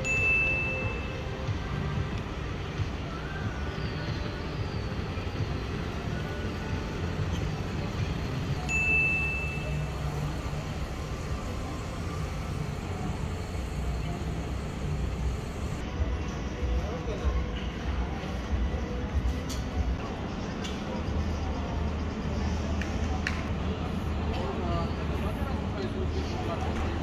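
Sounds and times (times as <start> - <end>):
electric shuttle humming: 8.1 - 15.8
short high beep: 8.6 - 10.2.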